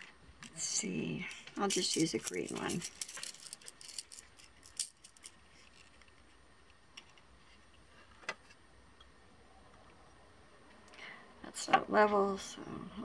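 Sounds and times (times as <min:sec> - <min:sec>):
faint room hum: 0:00.0 - 0:13.0
beads and plastic box clicking: 0:01.6 - 0:06.0.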